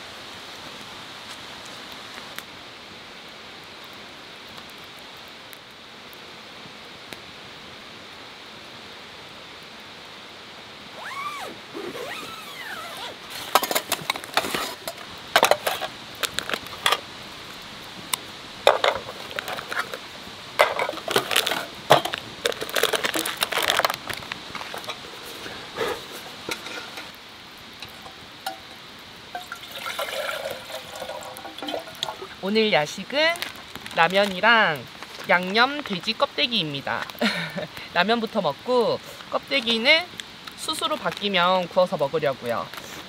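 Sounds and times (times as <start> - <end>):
steady hiss: 0.0 - 43.0
metal mess tin clinking: 13.5 - 17.0, 20.6 - 23.9, 26.4 - 27.1, 27.8 - 32.4
water pouring: 27.8 - 32.5.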